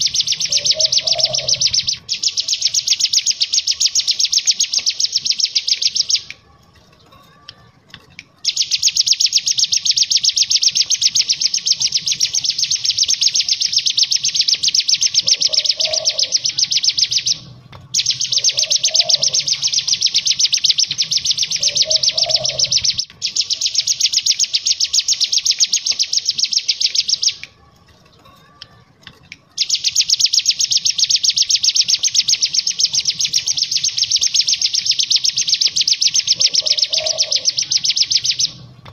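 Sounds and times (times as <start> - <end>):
bird rattling trill: 0.0 - 38.9.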